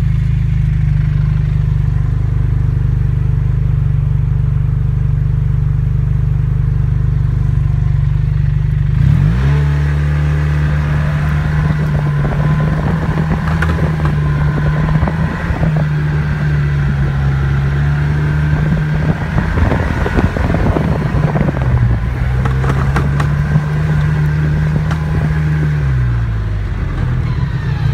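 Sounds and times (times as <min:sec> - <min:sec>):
snowmobile engine: 0:00.0 - 0:27.9
knocks and rattles: 0:13.0 - 0:14.3, 0:22.3 - 0:23.7.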